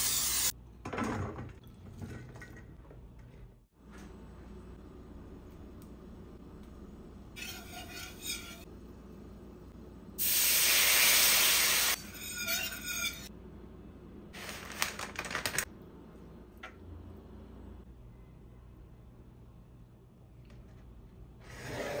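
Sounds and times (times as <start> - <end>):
loud hiss of liquid hitting hot pan: 10.2 - 12.0.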